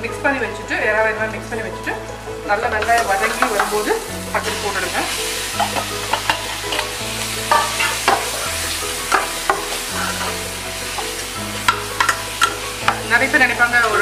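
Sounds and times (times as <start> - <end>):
prawns sizzling in a pot: 2.4 - 14.0
ladle clinking and scraping pot: 2.8 - 14.0.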